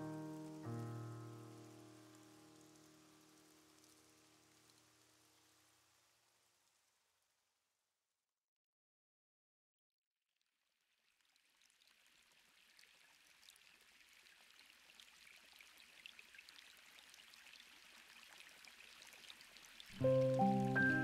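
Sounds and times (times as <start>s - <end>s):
running water hiss: 0.0s - 6.8s, 11.7s - 21.0s.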